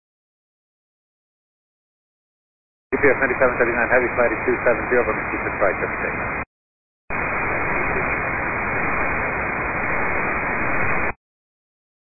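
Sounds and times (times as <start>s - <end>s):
radio static hiss: 3.0s - 6.4s, 7.1s - 11.2s.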